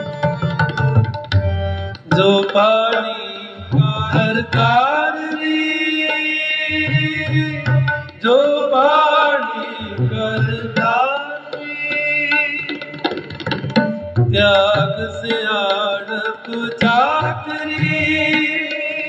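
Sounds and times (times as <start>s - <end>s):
tabla strokes: 0.0s - 8.6s, 9.9s - 19.0s
harmoniums holding chords: 0.0s - 12.9s.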